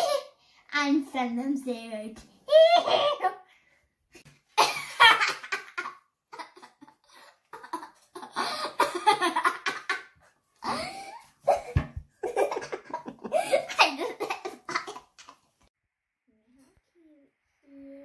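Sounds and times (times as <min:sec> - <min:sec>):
girl laughing: 0:04.6 - 0:15.3.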